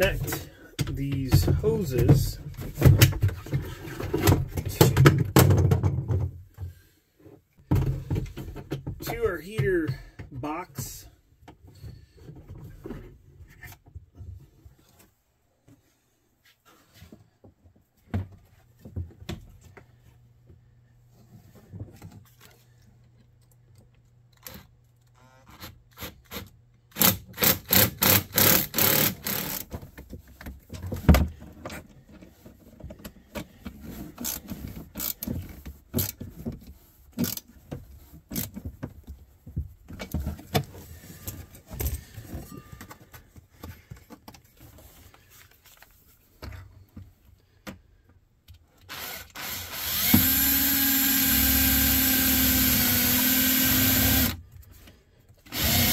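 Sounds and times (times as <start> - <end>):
hand tools clicking and knocking: 26.2 - 31.8
power drill running: 27.0 - 29.6, 48.9 - 54.4, 55.5 - 55.9.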